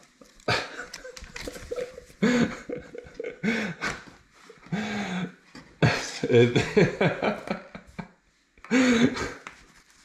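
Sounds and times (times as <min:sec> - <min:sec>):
man chuckling: 0:00.4 - 0:08.1.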